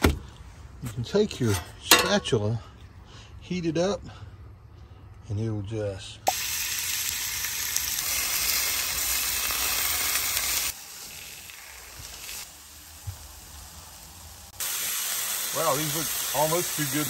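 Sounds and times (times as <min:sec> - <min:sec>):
chicken sizzling on griddle: 0:06.3 - 0:17.0.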